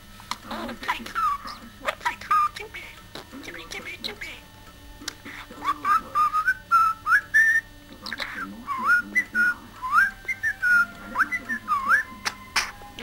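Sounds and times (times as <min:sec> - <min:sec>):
budgerigar whistling and warbling: 0:00.5 - 0:02.6, 0:05.5 - 0:12.8.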